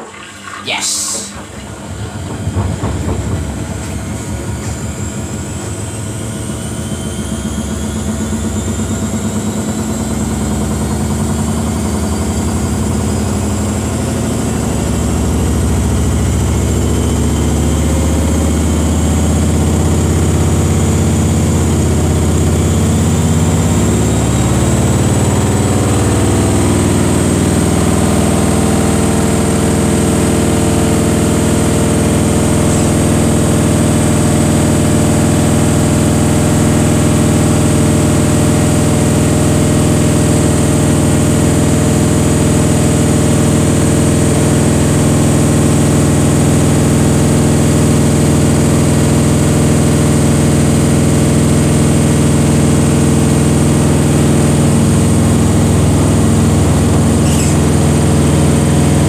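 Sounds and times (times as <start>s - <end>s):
low hum: 0.0s - 7.8s
motor whine rising in pitch: 0.0s - 59.0s
washing machine spinning: 0.0s - 59.0s.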